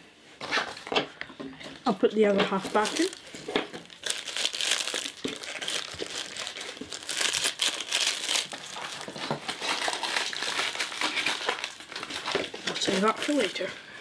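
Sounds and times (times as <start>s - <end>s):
wrapper crinkling and rustling: 1.8s - 13.7s.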